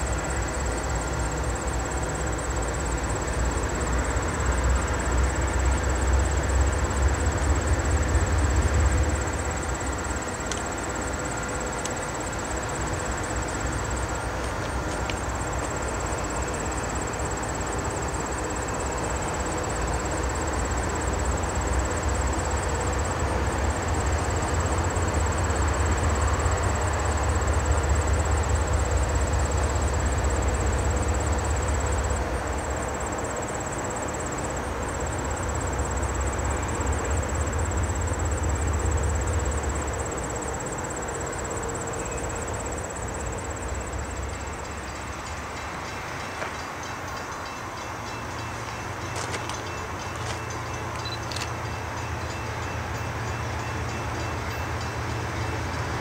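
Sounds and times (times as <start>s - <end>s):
train wheels rumbling on rails: 0.0s - 56.0s
train cars clattering: 43.0s - 56.0s.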